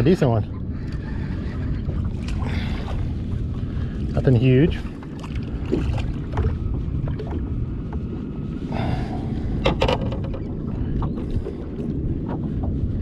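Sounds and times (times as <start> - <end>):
water lapping against boat hull: 0.0 - 13.0
wind buffeting microphone: 0.0 - 13.0
sharp clicks and knocks: 9.6 - 10.5.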